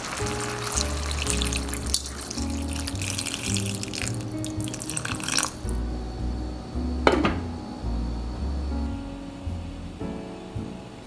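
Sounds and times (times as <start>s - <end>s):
water pouring into pot: 0.0s - 5.8s
background music: 0.0s - 11.0s.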